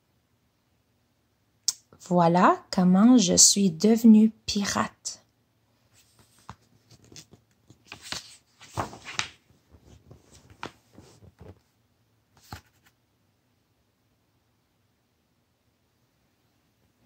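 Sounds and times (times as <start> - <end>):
book pages rustling: 5.9 - 11.7, 12.4 - 13.0.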